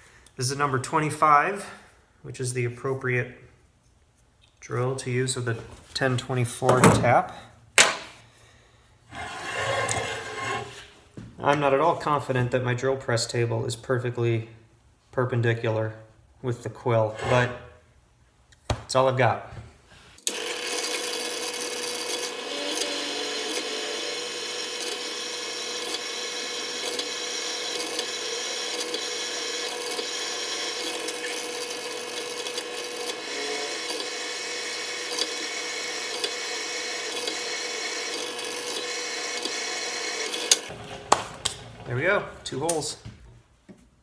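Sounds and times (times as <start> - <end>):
drill bit scraping metal: 9.1 - 10.9, 17.1 - 17.6, 21.8 - 34.2
drill press motor: 20.2 - 41.9.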